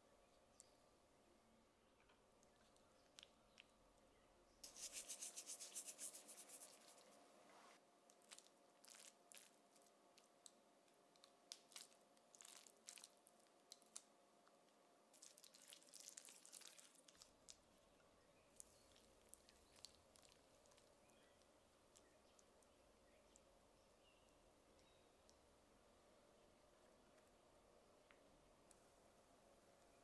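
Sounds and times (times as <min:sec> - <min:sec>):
spoon spreading spinach: 0:04.6 - 0:07.1
potato slices crackling: 0:08.1 - 0:14.1.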